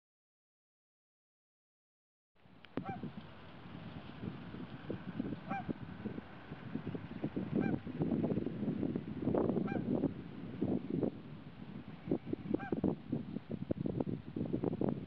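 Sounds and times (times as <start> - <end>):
geese honking: 2.8 - 3.1, 5.4 - 5.8, 7.6 - 7.8, 9.6 - 9.9, 12.5 - 12.8.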